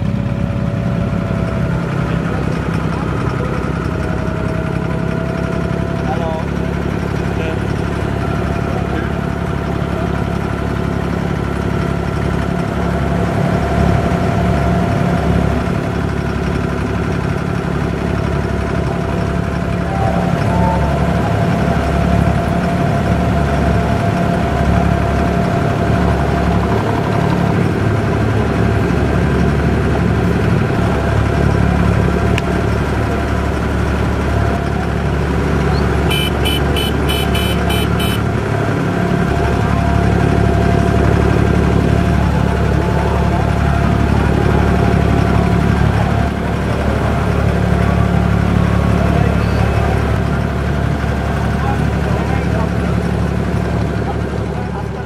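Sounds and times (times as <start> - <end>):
boat diesel engine running: 0.0 - 55.0.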